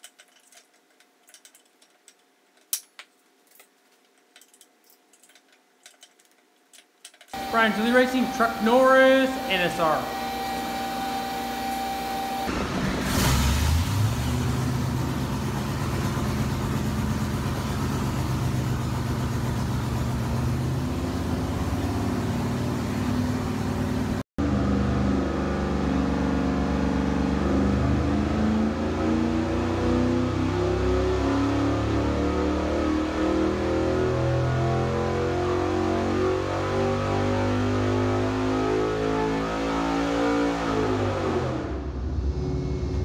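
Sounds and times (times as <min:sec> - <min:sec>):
engine idling: 0:12.5 - 0:24.2.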